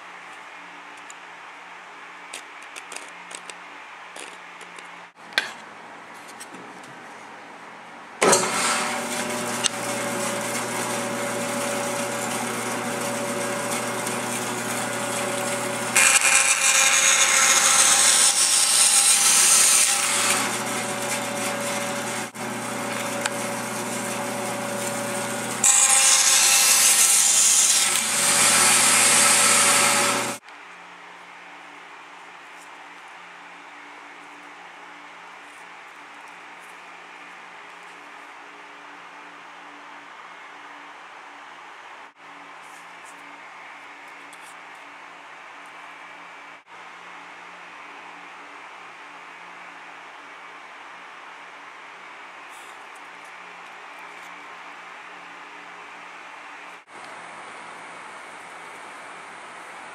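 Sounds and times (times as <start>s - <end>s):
band saw cutting wood: 8.2s - 30.4s
band saw running: 8.2s - 30.4s.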